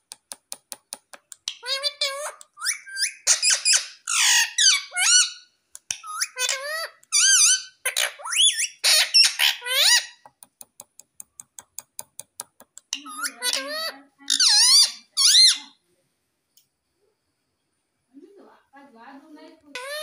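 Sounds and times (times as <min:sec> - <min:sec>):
parakeet squawking and chattering: 0:01.3 - 0:10.2, 0:12.5 - 0:15.8, 0:19.7 - 0:20.0.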